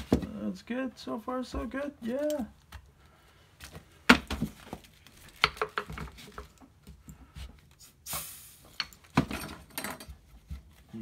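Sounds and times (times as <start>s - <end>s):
compressed air hiss: 7.8s - 8.8s.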